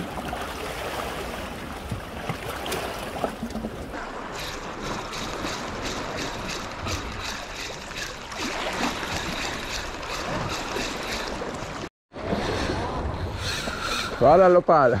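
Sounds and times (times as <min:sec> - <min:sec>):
sea water washing: 0:00.0 - 0:13.6
fishing reel ticking: 0:04.4 - 0:11.4.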